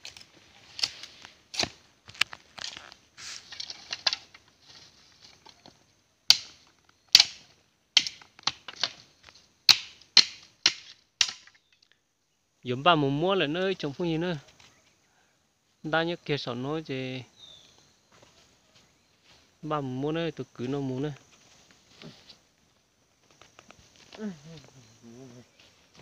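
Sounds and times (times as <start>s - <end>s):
knife splitting bamboo stick: 0.0s - 2.8s, 9.7s - 11.8s.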